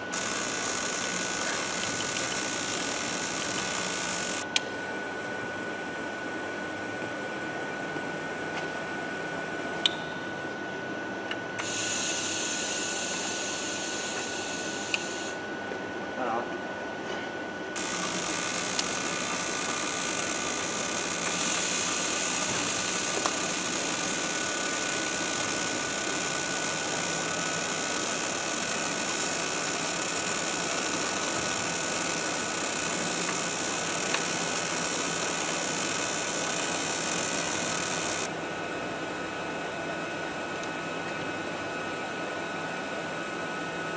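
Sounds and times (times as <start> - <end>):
metal fabrication shop noise: 0.0 - 4.6, 11.6 - 15.4, 17.8 - 38.4
thin high whine: 0.0 - 5.2, 9.0 - 16.5, 17.8 - 38.4.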